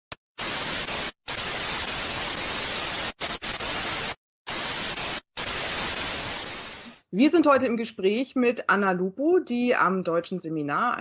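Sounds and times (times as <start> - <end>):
television static hiss: 0.4 - 7.0.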